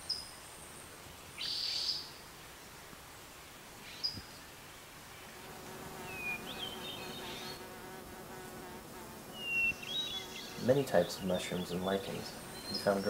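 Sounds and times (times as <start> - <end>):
faint outdoor background noise: 0.0 - 13.0
insect buzzing: 5.2 - 13.0.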